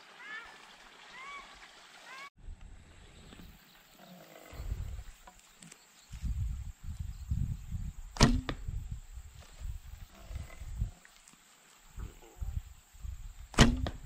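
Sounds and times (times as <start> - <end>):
wind gusts on microphone: 4.5 - 5.2, 6.1 - 11.0, 11.9 - 14.0
bowstring snap and twang: 8.2 - 8.7, 13.5 - 14.0.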